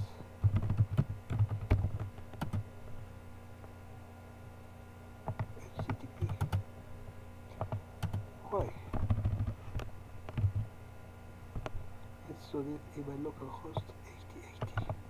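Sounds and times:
low steady hum: 0.0 - 15.0
typing on computer keyboard: 0.4 - 2.6, 5.3 - 6.6, 7.6 - 8.2, 9.0 - 9.5, 10.3 - 10.7, 14.6 - 15.0.

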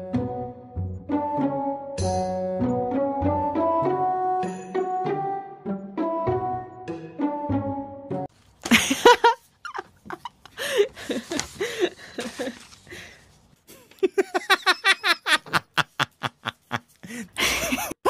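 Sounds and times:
person laughing: 8.7 - 12.8, 13.7 - 18.0.

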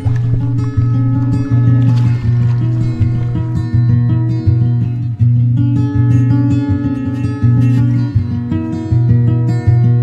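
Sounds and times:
low bass line: 0.0 - 4.2
plucked string notes: 0.0 - 10.0.

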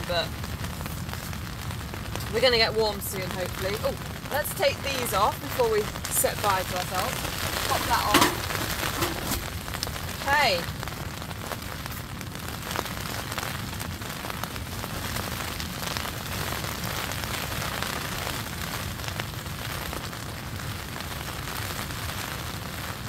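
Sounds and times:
rain drumming on tent fabric: 0.0 - 23.0
kindling clicking in stove: 7.7 - 9.6.

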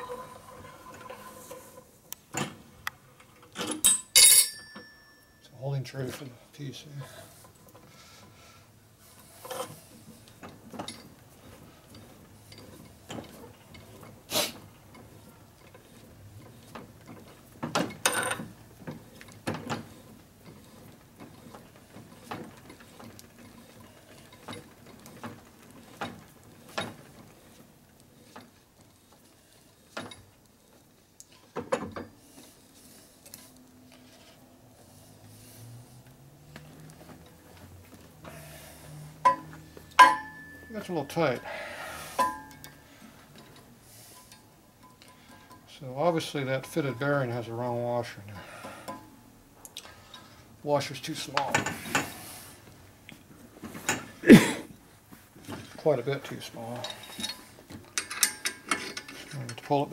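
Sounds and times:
metal engine parts clinking: 3.4 - 5.5, 39.2 - 41.4, 56.7 - 59.9.

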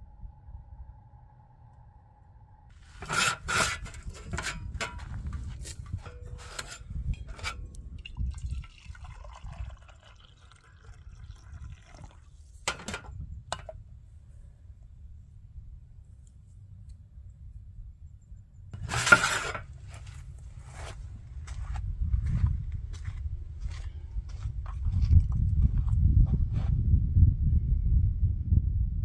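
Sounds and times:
coffee pouring into mug: 8.0 - 12.6.

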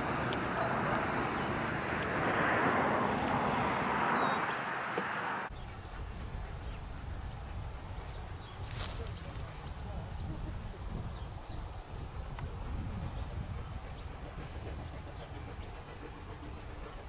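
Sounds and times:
train carriages rolling on rails: 7.4 - 17.0.

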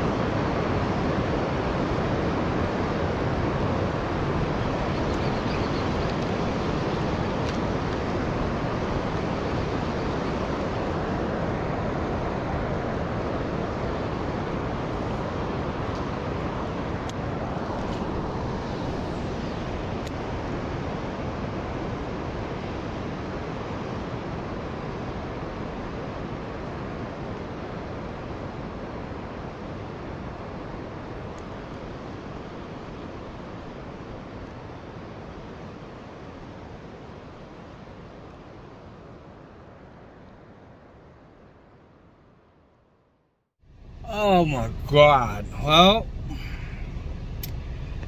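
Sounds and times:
flowing river water: 0.0 - 41.5, 43.7 - 48.0
wind buffeting microphone: 46.0 - 48.0.

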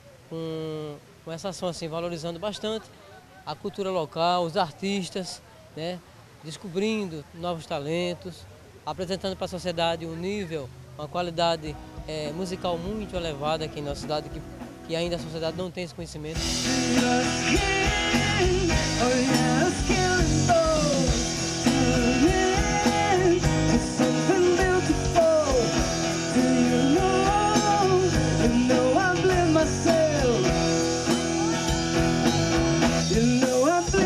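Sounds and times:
acoustic guitar: 11.2 - 34.0
drum kit: 12.0 - 15.7, 16.3 - 34.0
electric bass: 16.4 - 34.0
electric guitar: 16.4 - 34.0
person singing: 16.4 - 34.0.

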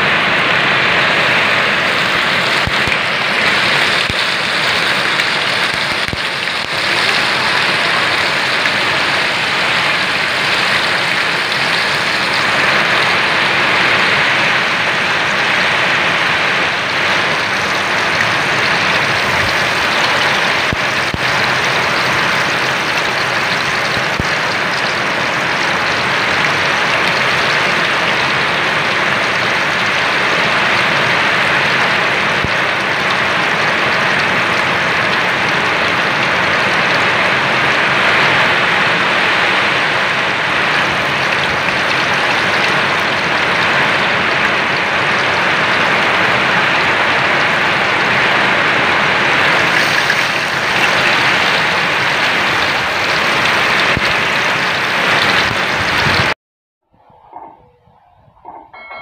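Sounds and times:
fish sizzling in oil: 1.8 - 13.3, 16.7 - 28.4, 49.4 - 56.3.

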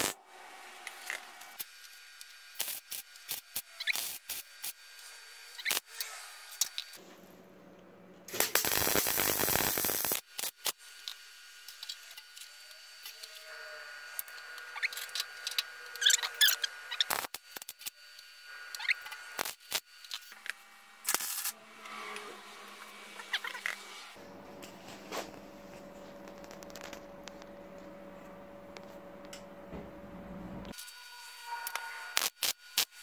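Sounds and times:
welding arc bursts: 0.0 - 7.0, 8.3 - 12.2, 14.0 - 18.0, 18.6 - 20.3, 21.0 - 21.6, 30.8 - 33.0.

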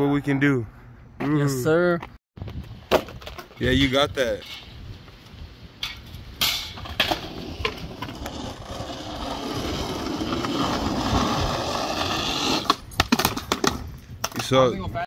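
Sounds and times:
skateboard wheels rolling on asphalt: 4.8 - 14.5
skateboard clacking onto asphalt: 12.5 - 14.6.

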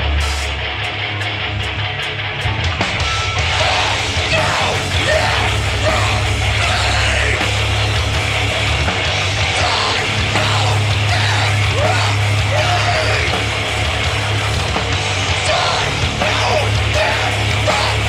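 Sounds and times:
heavy punk band playing live: 0.0 - 18.0
person yelling vocals: 3.6 - 7.5, 9.5 - 13.5, 15.4 - 18.0.

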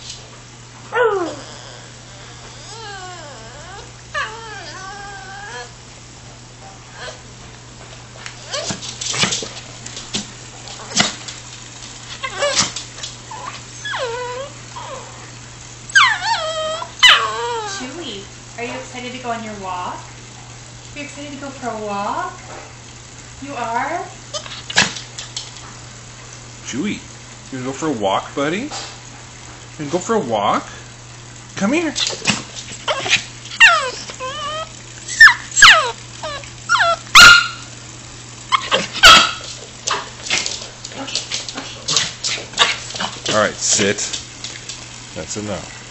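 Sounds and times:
puppy whining and yowling: 0.9 - 5.8, 8.4 - 8.9, 12.1 - 18.2, 32.8 - 37.8, 38.5 - 40.0
dog barking: 37.2 - 37.6, 38.6 - 40.1.

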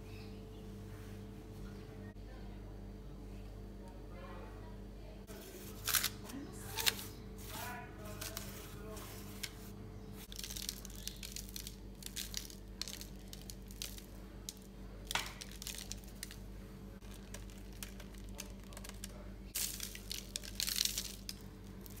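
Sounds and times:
steady low hum: 0.0 - 22.0
baking paper crinkling: 5.3 - 22.0.

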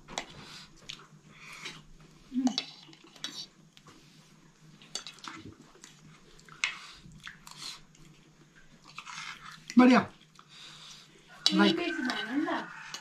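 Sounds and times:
person chewing: 4.8 - 11.0.

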